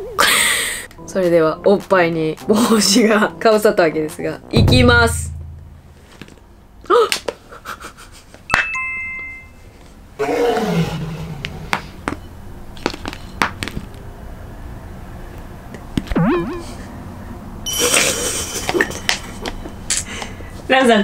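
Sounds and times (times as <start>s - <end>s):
short bell-like chime: 17.7s - 18.4s.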